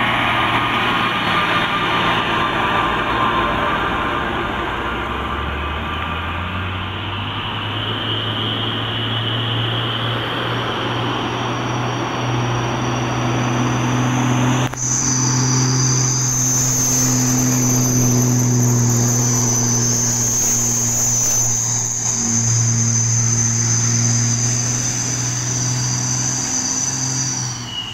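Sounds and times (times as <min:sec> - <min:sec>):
truck engines running: 0:00.0 - 0:27.9
insects chirping: 0:14.8 - 0:27.9.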